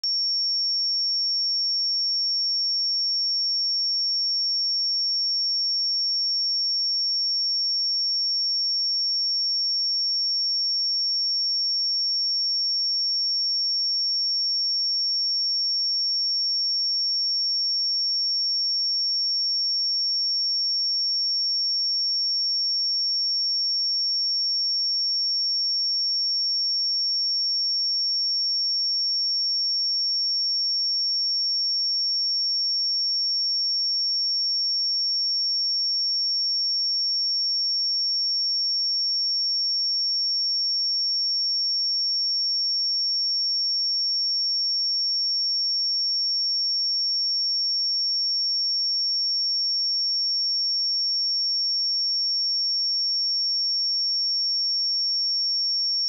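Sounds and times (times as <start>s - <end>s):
high-pitched sine test tone: 0.0s - 8.3s, 24.4s - 56.0s.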